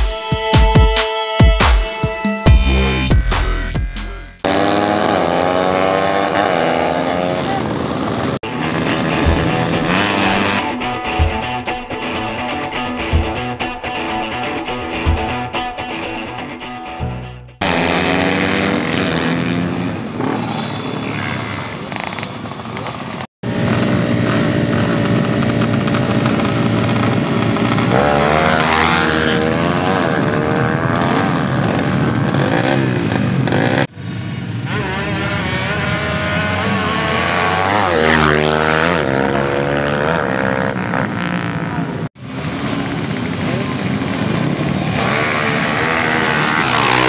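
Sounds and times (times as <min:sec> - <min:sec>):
motorcycles revving and accelerating: 0:04.4 - 0:10.8, 0:17.6 - 0:47.0.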